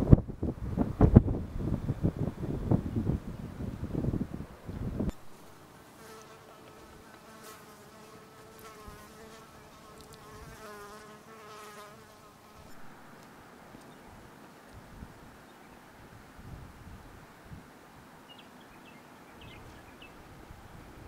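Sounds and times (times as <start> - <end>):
wind rush on microphone: 0.0 - 5.3, 10.2 - 10.8, 14.1 - 15.4, 16.0 - 17.7
flying insect buzzing: 5.2 - 13.0.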